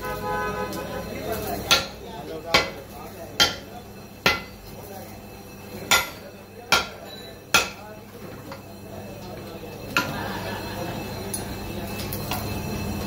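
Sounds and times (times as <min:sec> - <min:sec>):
sharp metal knocks: 0:03.4 - 0:04.6, 0:05.9 - 0:07.8.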